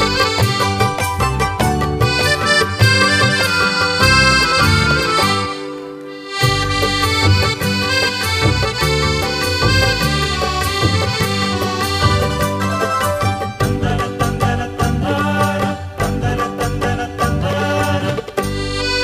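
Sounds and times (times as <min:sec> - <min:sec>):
accordion playing a melody: 0:00.0 - 0:16.8, 0:18.3 - 0:19.0.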